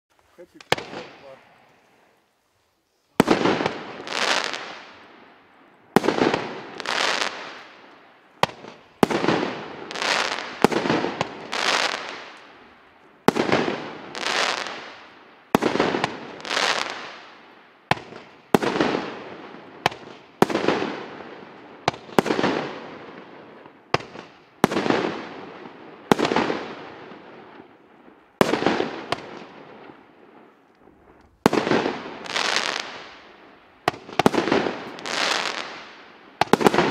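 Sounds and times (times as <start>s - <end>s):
firework aerial bursts: 3.0s - 5.3s, 6.0s - 12.5s, 13.2s - 23.3s, 28.4s - 36.9s.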